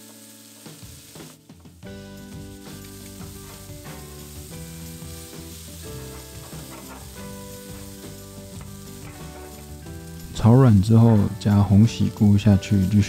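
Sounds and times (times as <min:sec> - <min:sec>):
background music: 0:00.0 - 0:13.0
food sizzling in oil: 0:00.0 - 0:13.0
chopsticks stirring in pan: 0:02.2 - 0:11.4.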